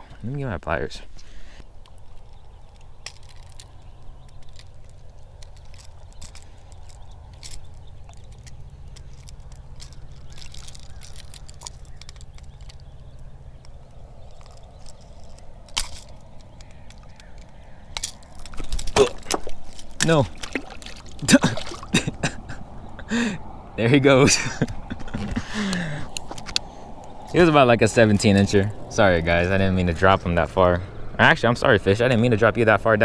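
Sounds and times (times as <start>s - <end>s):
pliers and hooks clicking: 1.8s - 13.0s, 13.6s - 21.0s.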